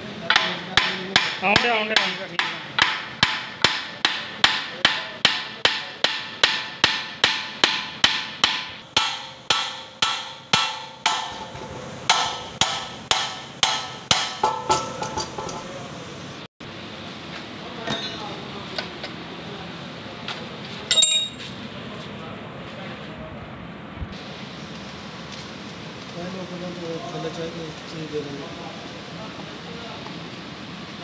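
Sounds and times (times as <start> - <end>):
hammer clanking on metal: 0.3 - 15.8.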